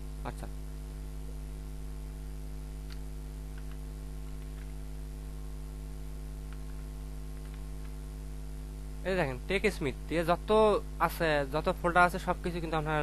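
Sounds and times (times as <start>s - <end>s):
low electrical hum: 0.0s - 13.0s
computer keyboard clicks: 2.8s - 4.8s, 6.5s - 8.0s.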